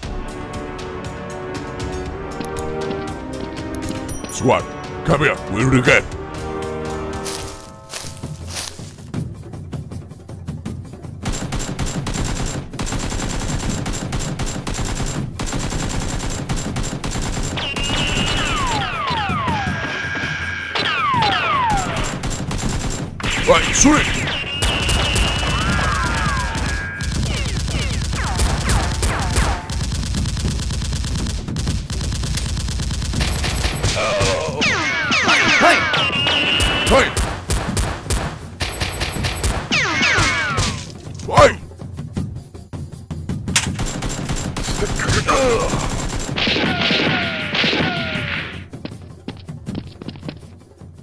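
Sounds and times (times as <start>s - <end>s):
rapid machine-gun fire: 11.2s - 19.6s, 21.1s - 34.0s, 36.1s - 40.6s, 43.6s - 48.1s
rapid gunfire: 11.2s - 19.8s, 20.8s - 40.9s, 43.6s - 48.6s.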